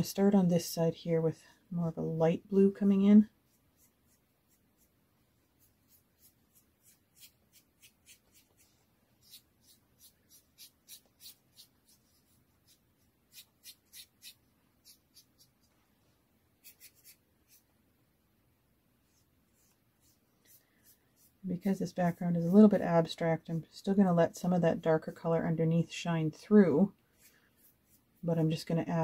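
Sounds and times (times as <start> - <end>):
paintbrush swishing on board: 27.1 - 28.3.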